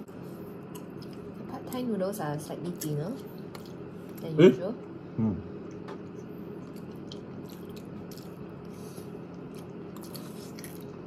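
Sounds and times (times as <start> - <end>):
person chewing: 0.5 - 1.5, 3.2 - 4.2, 5.6 - 11.0.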